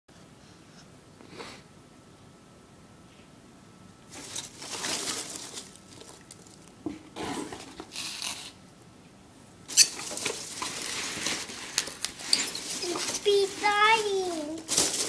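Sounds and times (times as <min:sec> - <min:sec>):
cardboard box rustling: 0:04.2 - 0:06.2.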